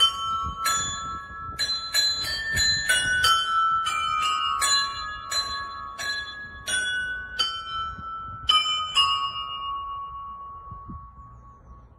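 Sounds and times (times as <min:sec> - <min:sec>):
church bells pealing: 0:00.0 - 0:11.2.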